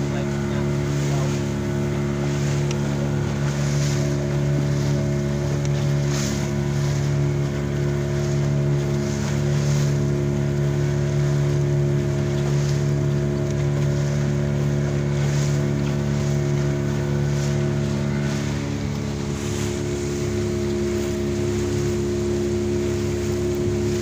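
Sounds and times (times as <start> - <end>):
boat engine droning: 0.0 - 24.0
water splashing along hull: 0.0 - 24.0.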